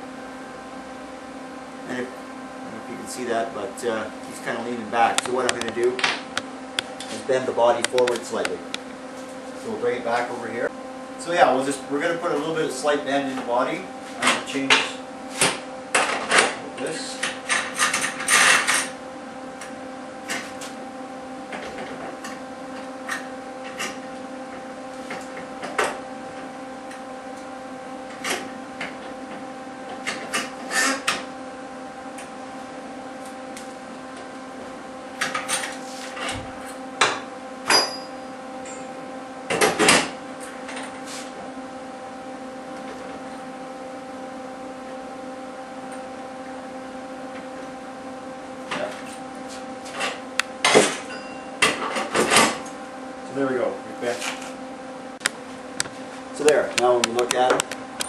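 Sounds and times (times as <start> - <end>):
steady hum: 0.0 - 58.0.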